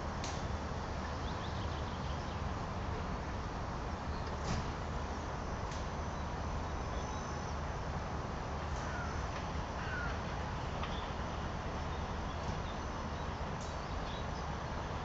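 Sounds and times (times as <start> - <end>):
outdoor rumble and hiss: 0.0 - 15.0
faint bird calls: 8.8 - 9.2, 9.8 - 10.2.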